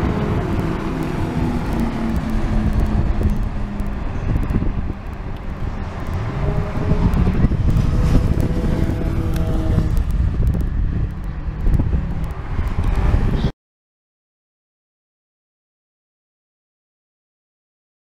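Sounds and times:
racing car engines passing: 0:00.0 - 0:13.5.

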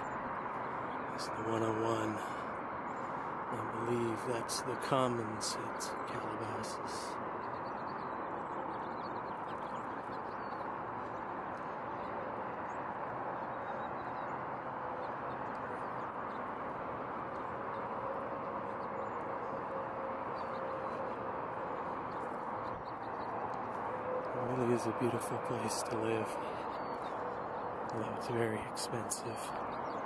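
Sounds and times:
distant freeway traffic roar: 0:00.0 - 0:30.0
faint bird chirps: 0:05.5 - 0:16.6.

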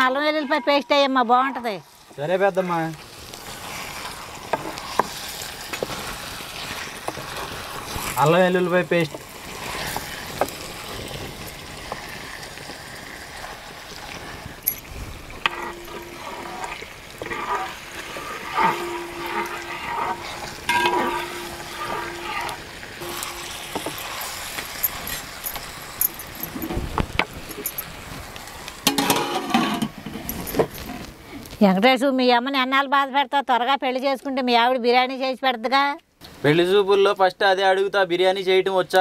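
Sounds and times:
spoon scraping metal pot: 0:15.4 - 0:26.8, 0:28.9 - 0:31.1
lid clattering onto pot: 0:18.5 - 0:25.2, 0:28.9 - 0:30.7.

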